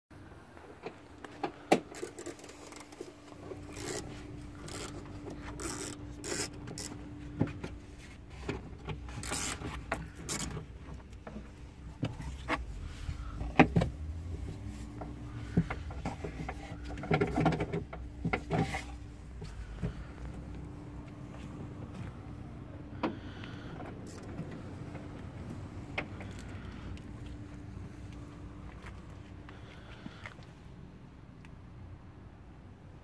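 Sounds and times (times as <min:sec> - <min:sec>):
faint steady hum: 0:00.2 - 0:33.0
phone rubbing on plastic panels: 0:01.9 - 0:20.1.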